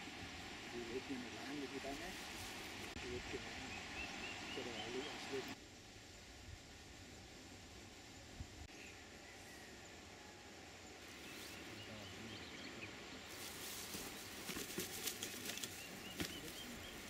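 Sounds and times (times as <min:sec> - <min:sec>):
faint outdoor hiss: 0:00.0 - 0:17.0.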